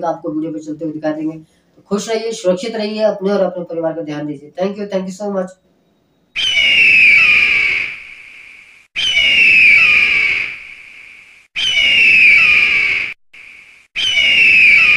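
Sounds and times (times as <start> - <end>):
bird of prey screech: 5.8 - 14.9.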